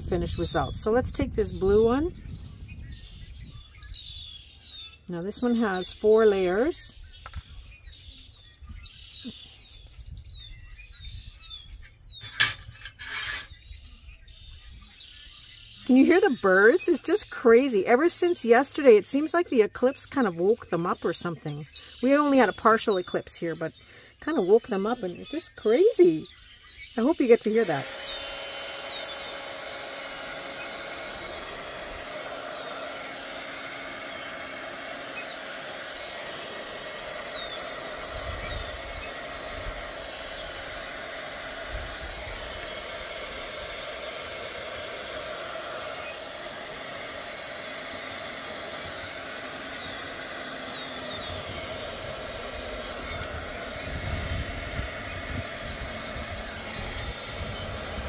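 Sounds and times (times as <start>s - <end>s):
bird chirps: 0.1s - 28.3s, 35.1s - 35.5s, 37.2s - 39.2s, 49.6s - 51.8s
heat gun blowing: 12.2s - 13.6s, 27.0s - 58.0s.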